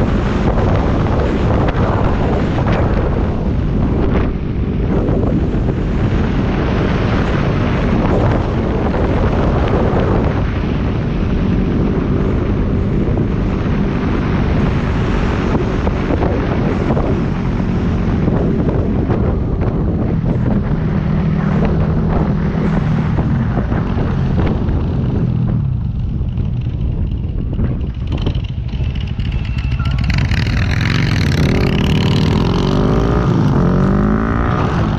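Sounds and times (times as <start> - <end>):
motorcycle engine droning: 0.0 - 34.9
wind buffeting microphone: 0.0 - 34.9.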